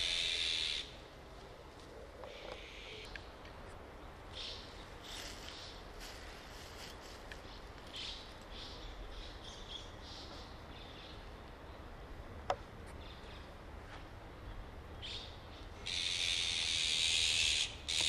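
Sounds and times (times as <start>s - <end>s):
magpies giving harsh calls: 0.0s - 0.9s, 15.8s - 18.0s.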